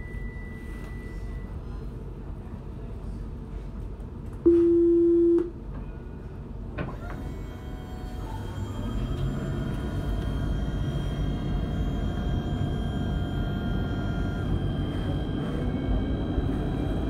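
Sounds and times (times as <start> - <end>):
door-closing warning tone: 0.0 - 1.6, 4.5 - 5.5
tram running rumble: 5.4 - 17.0
traction motors whining: 6.8 - 17.0.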